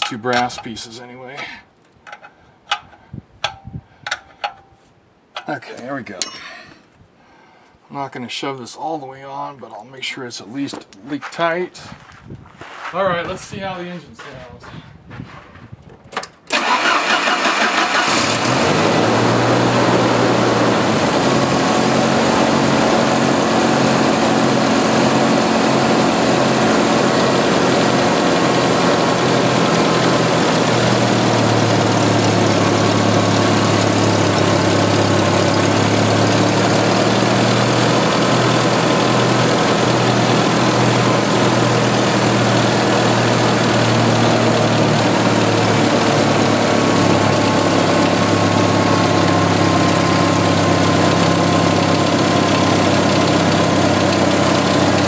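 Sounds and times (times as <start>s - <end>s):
car engine idling: 16.6s - 55.0s.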